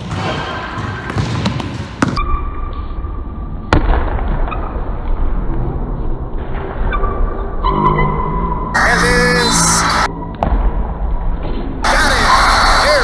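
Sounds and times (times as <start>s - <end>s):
basketball thumping on gym floor: 0.0s - 2.2s.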